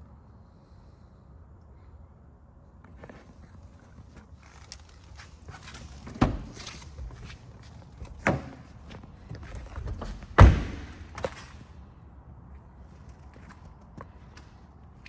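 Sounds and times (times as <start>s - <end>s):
car door thudding: 9.9s - 11.3s.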